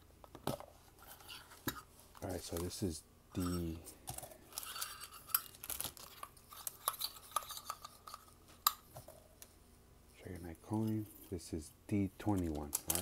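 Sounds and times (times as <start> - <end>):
foil and plastic packaging crinkling: 4.6 - 8.2.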